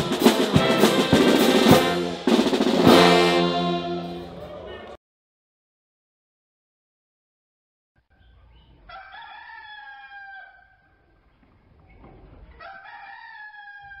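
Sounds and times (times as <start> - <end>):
rooster crowing: 8.9 - 10.9, 12.6 - 14.0.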